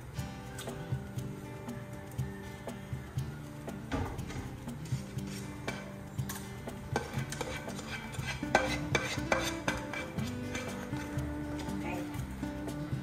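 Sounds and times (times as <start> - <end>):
spoon scraping a frying pan: 5.1 - 11.8.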